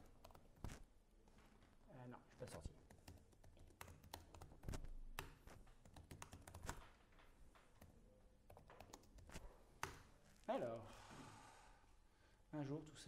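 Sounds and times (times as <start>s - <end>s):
laptop keys typing: 0.0s - 0.9s, 2.6s - 10.2s.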